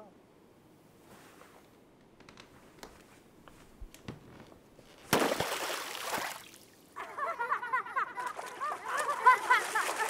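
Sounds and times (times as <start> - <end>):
loud splash of water: 5.1 - 6.7, 8.2 - 10.0.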